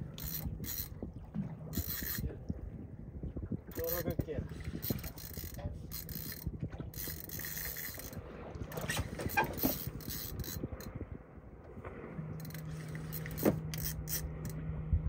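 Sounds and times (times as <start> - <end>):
fishing reel gears whirring and clicking: 0.0 - 2.4, 3.7 - 11.0, 12.4 - 14.6
steady low hum: 0.0 - 15.0.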